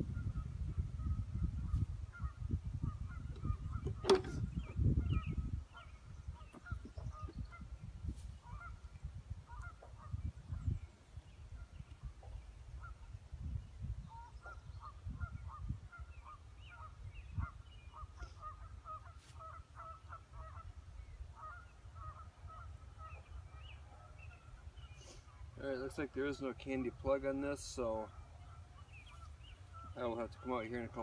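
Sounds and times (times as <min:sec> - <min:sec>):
flock of birds honking: 0:08.4 - 0:08.9, 0:14.1 - 0:25.6, 0:27.6 - 0:31.0.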